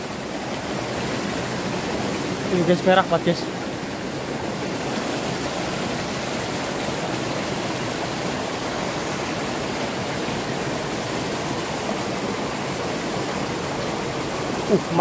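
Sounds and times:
stream rushing over rocks: 0.0 - 15.0.

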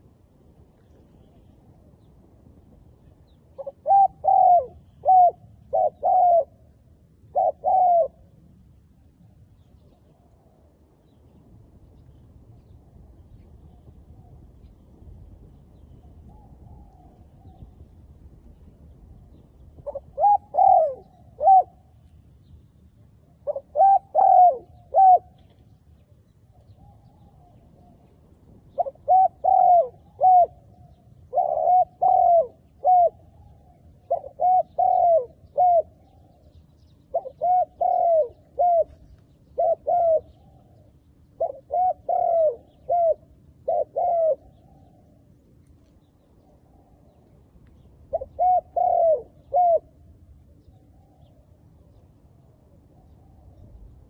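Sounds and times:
dove cooing: 3.5 - 8.4, 19.8 - 22.0, 23.3 - 25.6, 28.7 - 45.4, 48.0 - 53.9.

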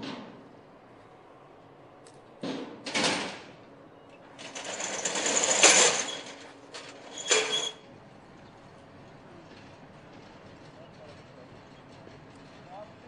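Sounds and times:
metal shutter clanks: 2.8 - 3.5, 4.3 - 7.8
metal roller shutter rattling down: 4.4 - 7.8.

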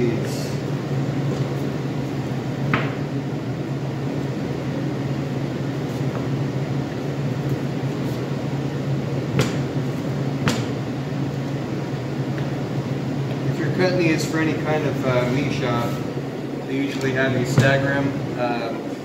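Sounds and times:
low machine hum: 0.0 - 19.0.

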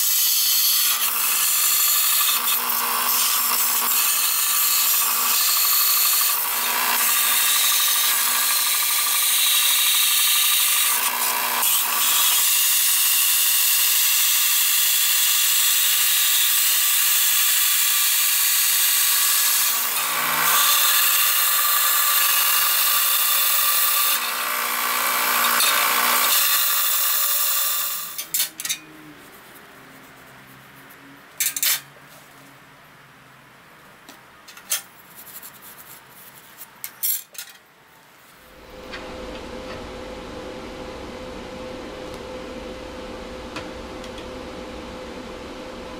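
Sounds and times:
belt sander grinding metal: 0.4 - 14.4, 18.8 - 28.8.

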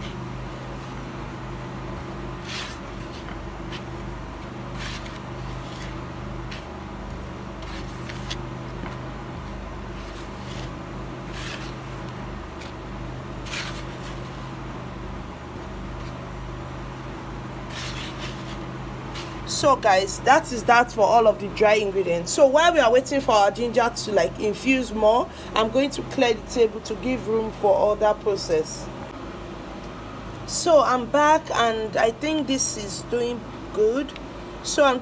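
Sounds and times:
spatula scraping flour in bowl: 2.4 - 3.9, 4.7 - 6.7, 10.0 - 11.9, 17.7 - 19.4.

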